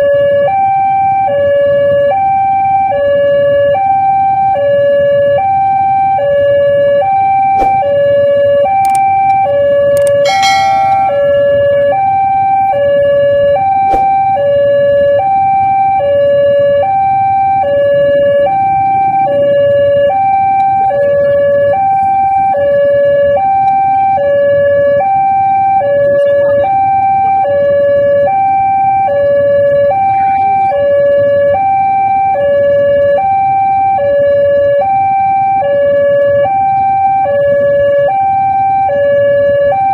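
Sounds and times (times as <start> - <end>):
level-crossing alarm ding-dong: 10.0 - 12.2.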